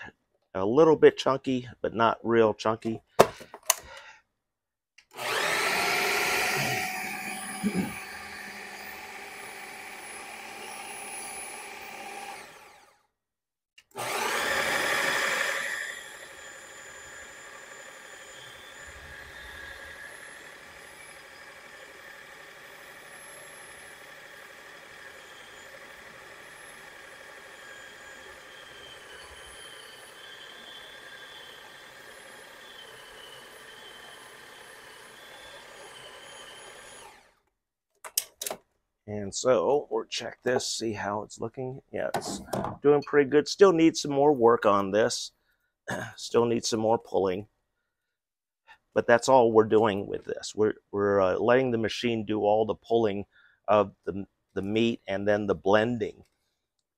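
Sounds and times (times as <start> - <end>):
food processor motor running: 5.1 - 13.0, 13.8 - 37.3.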